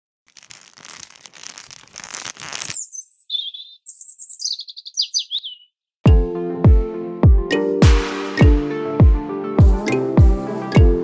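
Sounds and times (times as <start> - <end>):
rustling fluttering noise: 0.3 - 4.5
songbird singing: 2.7 - 5.8.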